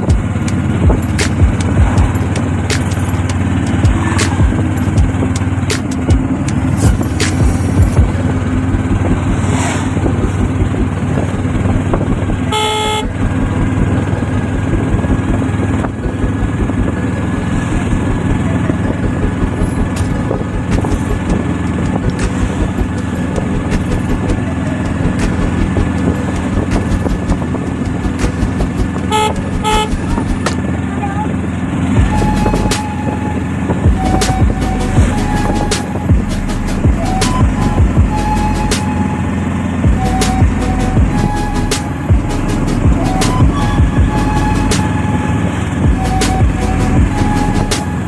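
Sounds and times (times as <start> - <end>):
motor vehicle running: 0.0 - 48.0
car horn: 12.4 - 13.3, 29.0 - 30.3, 32.0 - 36.1.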